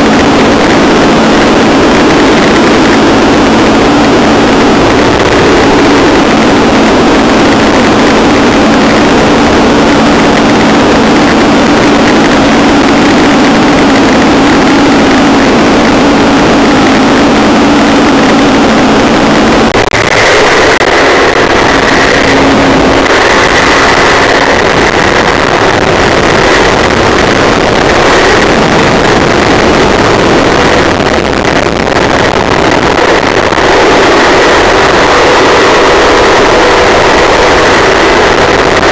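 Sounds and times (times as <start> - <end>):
air rushing over microphone: 0.0 - 38.9
paramotor engine running: 0.0 - 38.9.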